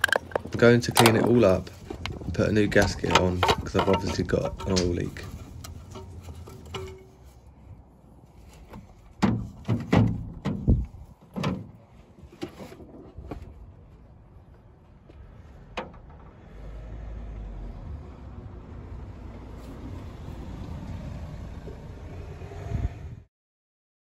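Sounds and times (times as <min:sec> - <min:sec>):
metal clunks and knocks: 0:00.0 - 0:07.3, 0:08.6 - 0:13.6, 0:15.6 - 0:16.4.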